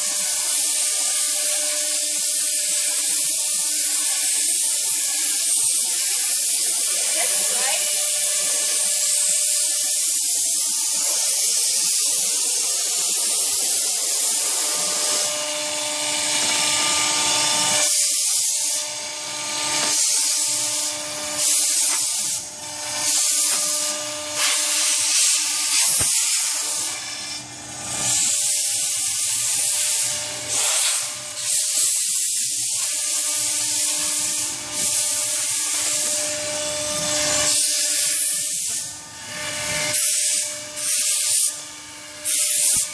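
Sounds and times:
router spindle whining: 0:04.7 - 0:24.8
compressed air blasts: 0:21.4 - 0:36.2, 0:39.8 - 0:41.6, 0:42.2 - 0:42.9.

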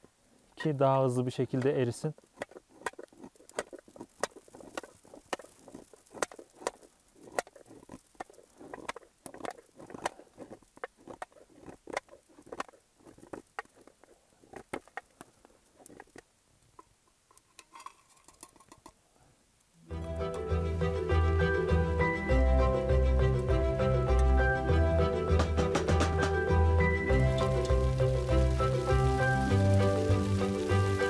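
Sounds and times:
knife scraping wax: 0:01.5 - 0:15.1.

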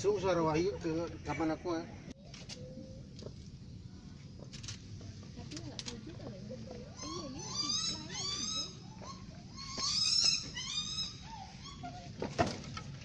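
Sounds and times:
peafowl calling: 0:06.8 - 0:12.2.

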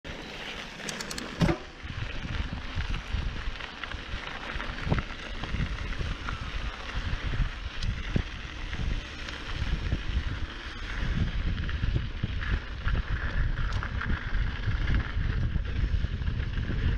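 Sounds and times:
bike knocks and rattles: 0:00.9 - 0:01.8
wind buffeting microphone: 0:01.4 - 0:16.9
tyres crunching on gravel: 0:01.6 - 0:16.0.

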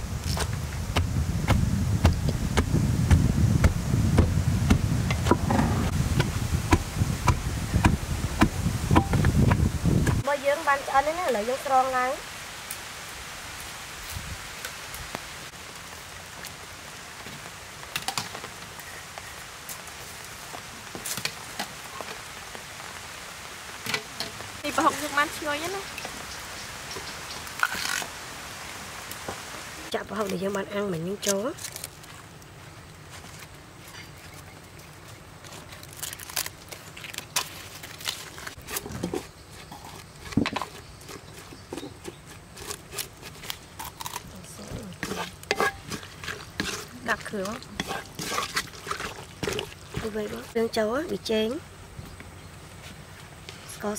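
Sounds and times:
wooden spoon scraping and tapping: 0:45.0 - 0:50.5.

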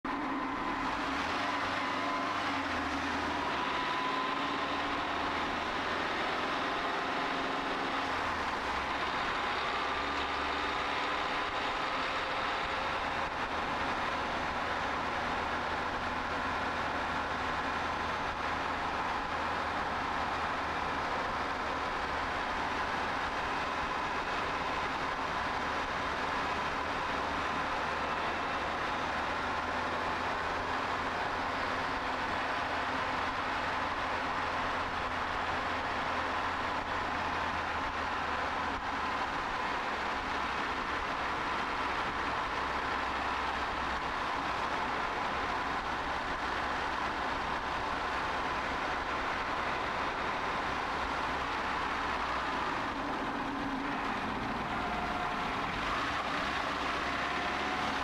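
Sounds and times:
car engine running: 0:00.0 - 0:58.0
tyre and road noise: 0:00.0 - 0:58.0.

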